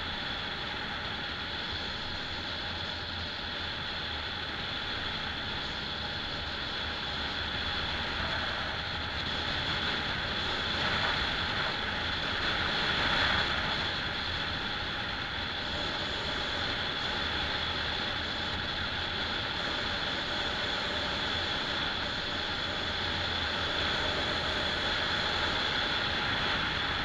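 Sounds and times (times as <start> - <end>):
car road and wind noise: 0.0 - 27.0
high-pitched whine: 0.0 - 27.0.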